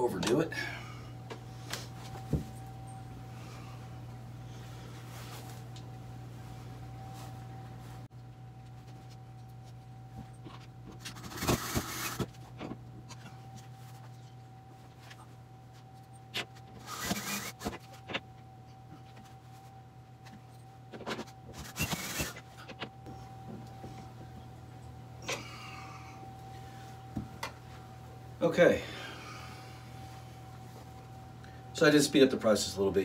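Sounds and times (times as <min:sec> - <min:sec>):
cordless drill driving screws: 0:16.8 - 0:17.7, 0:21.6 - 0:22.4.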